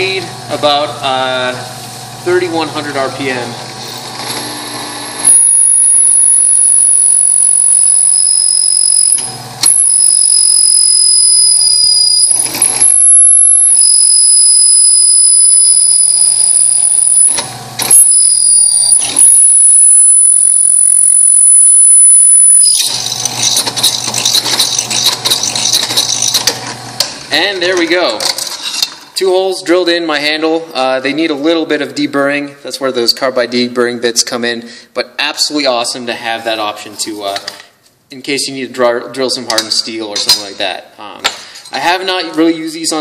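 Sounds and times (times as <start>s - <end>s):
drill bit squealing in steel: 5.3s - 23.0s.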